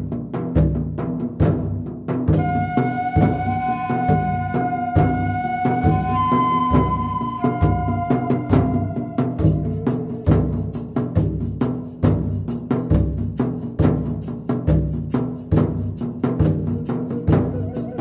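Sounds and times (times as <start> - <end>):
low drum beat: 8.0 - 18.0
fast high ticking percussion: 9.4 - 18.0.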